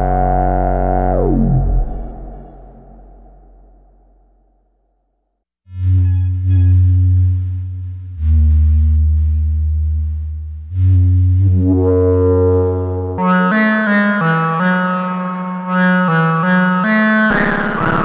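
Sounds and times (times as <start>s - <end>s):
synthesizer higher bright notes: 0.0s - 3.7s, 11.4s - 18.0s
synthesizer deep bass notes: 0.0s - 4.5s, 5.7s - 18.0s.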